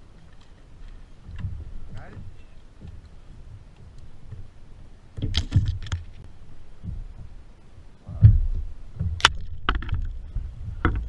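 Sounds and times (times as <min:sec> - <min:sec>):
thumps and knocks on plastic kayak: 0:01.3 - 0:04.5, 0:05.1 - 0:06.1, 0:06.8 - 0:07.4, 0:08.1 - 0:11.0.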